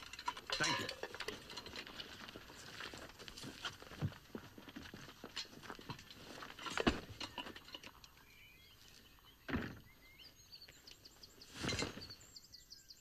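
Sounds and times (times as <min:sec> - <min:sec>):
footsteps: 0:00.0 - 0:08.0
faint bird chirps: 0:08.1 - 0:13.0.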